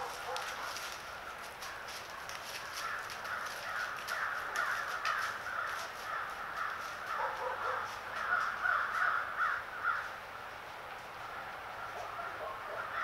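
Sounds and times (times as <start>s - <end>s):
crows cawing: 2.6s - 10.2s, 11.8s - 13.0s.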